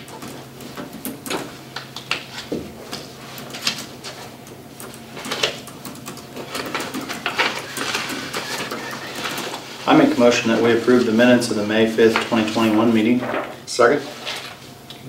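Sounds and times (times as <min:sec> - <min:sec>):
low room hum: 0:00.0 - 0:15.0
paper rustling: 0:06.4 - 0:14.7.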